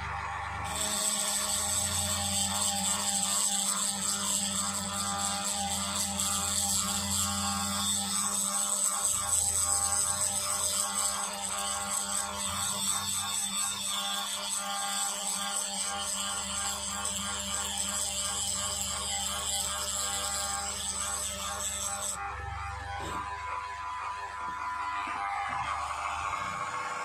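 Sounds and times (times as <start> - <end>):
drill bit grinding chip: 0.0 - 27.0
electric drill whirring: 0.0 - 27.0.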